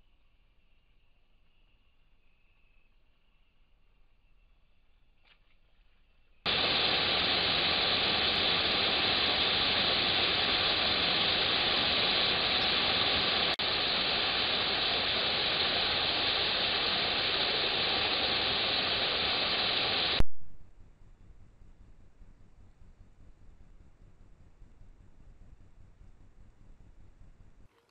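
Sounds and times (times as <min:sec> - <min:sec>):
mountain stream rushing: 0:06.5 - 0:20.2.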